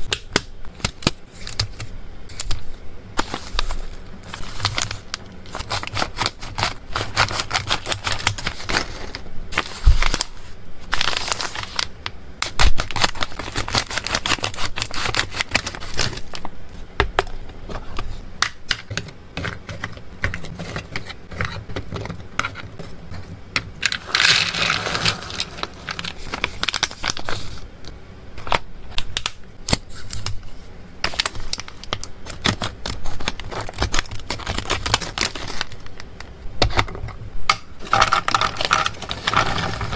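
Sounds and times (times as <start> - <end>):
scissors snipping plastic: 0.0 - 2.6, 4.3 - 8.9, 11.0 - 16.5, 31.1 - 39.9
packaging rustle: 1.0 - 16.5, 23.8 - 27.7, 31.0 - 36.1, 37.8 - 39.9
foil pouches crinkling: 3.2 - 16.5, 23.8 - 27.6, 31.0 - 36.1, 37.8 - 39.9.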